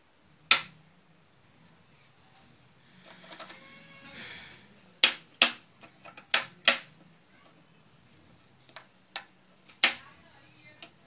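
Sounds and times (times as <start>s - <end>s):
sharp mechanical relay clicks: 0.5s - 0.8s, 5.0s - 6.9s, 9.1s - 10.1s.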